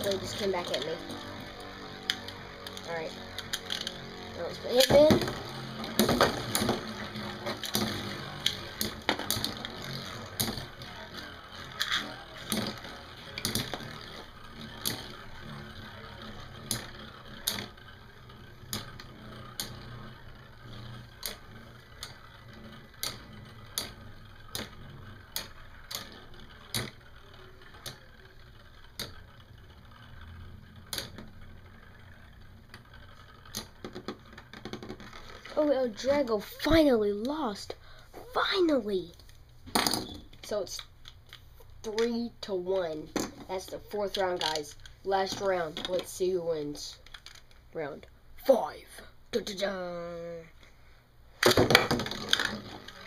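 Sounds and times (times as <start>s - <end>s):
spinning tops clacking together: 0.0s - 35.6s, 51.4s - 53.0s.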